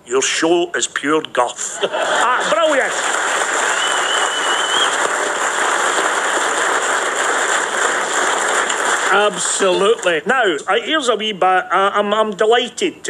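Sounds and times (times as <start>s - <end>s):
audience applauding: 1.9s - 10.3s
whistle from crowd: 3.7s - 5.0s.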